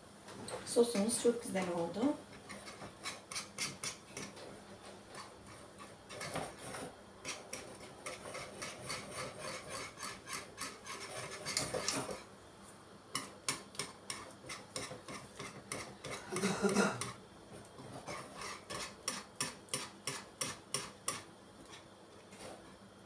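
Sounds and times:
spoon stirring thick sauce in pot: 0:13.1 - 0:16.4, 0:17.0 - 0:21.8.

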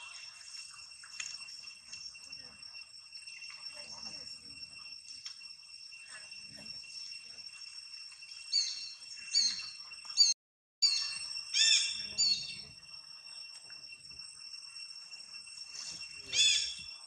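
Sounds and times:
steady high-pitched whine: 0:00.0 - 0:17.0
high-pitched animal calls: 0:08.5 - 0:12.7, 0:15.8 - 0:17.0.

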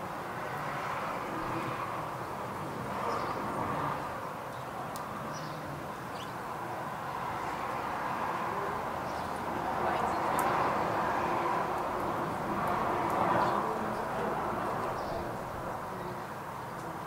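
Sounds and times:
outdoor background rush: 0:00.0 - 0:17.0.

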